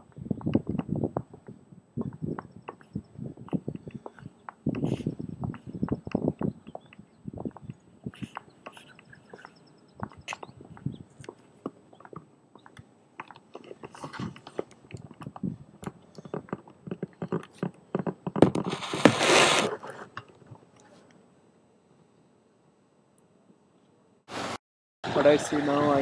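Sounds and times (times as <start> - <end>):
loud rustle: 18.6 - 20.1.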